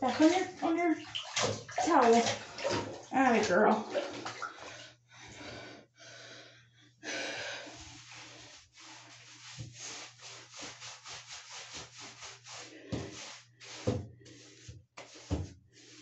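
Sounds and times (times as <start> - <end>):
hands rubbing wet fur: 7.8 - 16.0.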